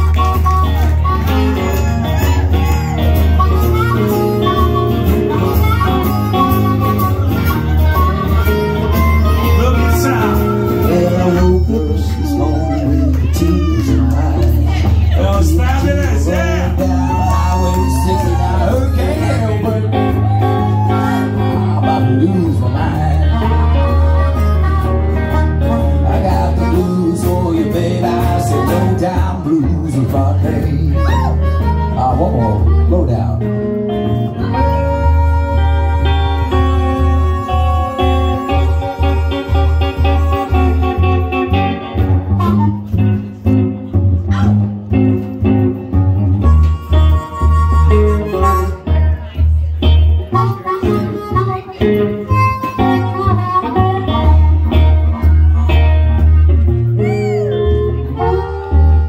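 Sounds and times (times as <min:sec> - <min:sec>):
amplified harmonica solo: 0:00.0 - 0:14.0, 0:23.0 - 0:29.1, 0:30.8 - 0:43.8, 0:46.0 - 0:59.0
guitar backing: 0:00.0 - 0:59.0
low bass line: 0:00.0 - 0:59.0.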